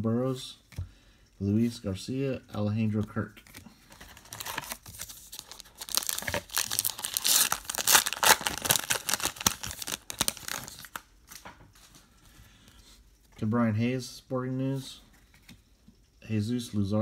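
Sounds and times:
plastic wrapper tearing and crinkling: 0:04.0 - 0:11.4.

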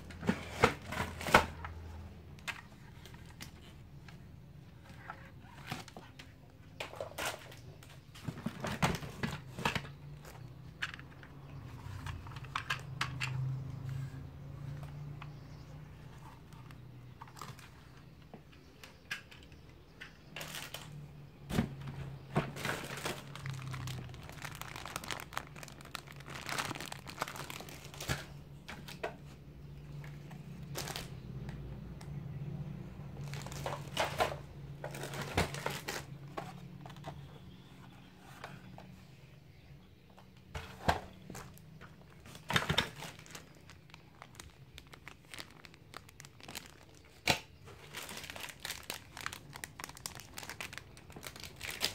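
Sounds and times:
plastic packaging crinkling: 0:20.2 - 0:21.0, 0:22.1 - 0:29.1, 0:30.1 - 0:31.3, 0:33.2 - 0:37.6, 0:41.2 - 0:51.9.

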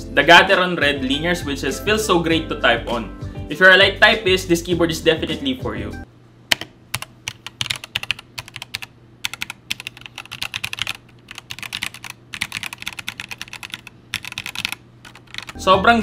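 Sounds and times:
mechanical keyboard typing: 0:06.5 - 0:15.6.

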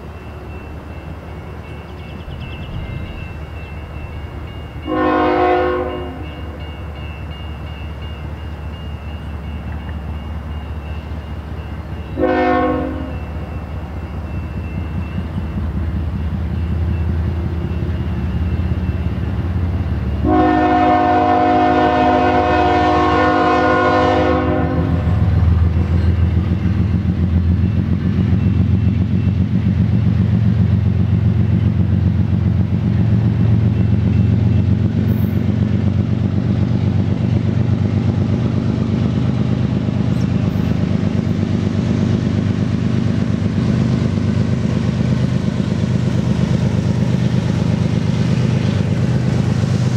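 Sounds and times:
locomotive engine rumbling: 0:00.0 - 0:49.9
train chord horn blast: 0:04.8 - 0:06.6, 0:12.2 - 0:13.3, 0:20.2 - 0:25.6.

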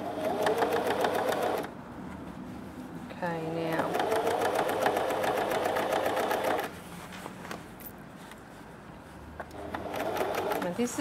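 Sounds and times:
sewing machine stitching: 0:00.0 - 0:01.7, 0:03.7 - 0:06.7, 0:09.6 - 0:11.0.

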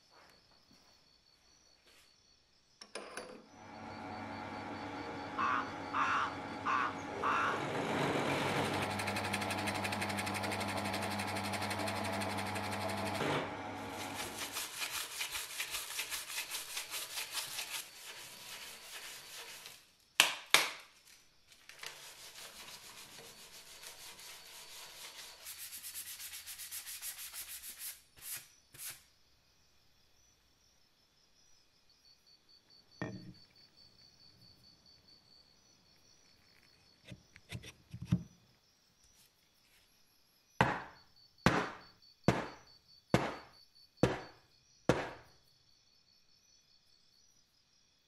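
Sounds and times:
drill press motor humming: 0:03.6 - 0:14.2
hand-sanding wood: 0:07.5 - 0:13.2, 0:13.8 - 0:19.8, 0:21.8 - 0:29.0
sharp knocks: 0:40.6 - 0:45.3.

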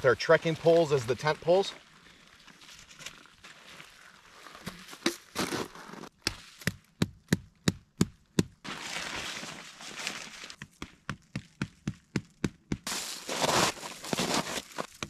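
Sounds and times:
rustling: 0:08.7 - 0:10.6, 0:12.9 - 0:15.0.

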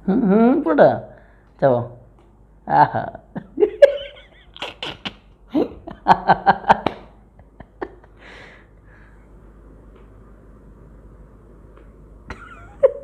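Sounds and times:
person laughing: 0:02.7 - 0:08.6, 0:12.3 - 0:13.0.

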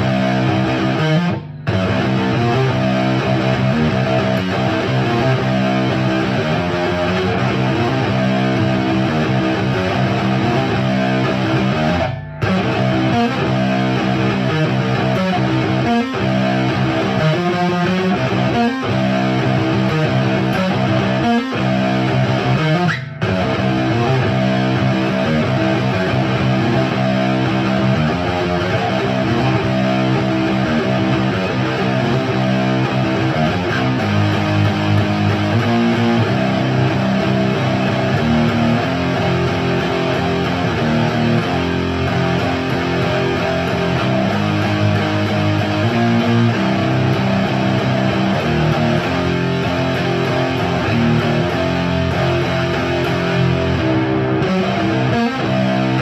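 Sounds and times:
electric guitar chords and riffs: 0:00.0 - 0:56.0.

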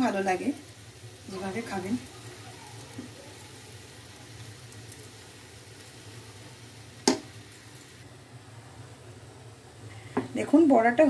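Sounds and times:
food deep-frying in oil: 0:00.0 - 0:08.1.

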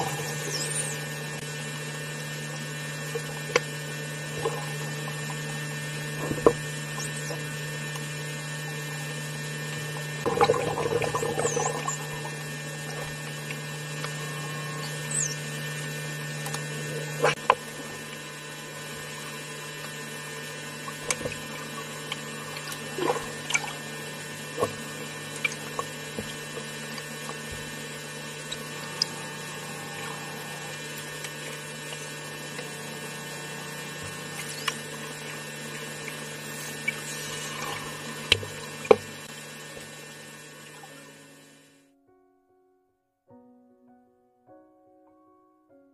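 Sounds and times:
low underwater hum: 0:00.0 - 0:42.0
dolphin whistles: 0:00.1 - 0:01.1, 0:11.3 - 0:12.1, 0:14.2 - 0:15.5.

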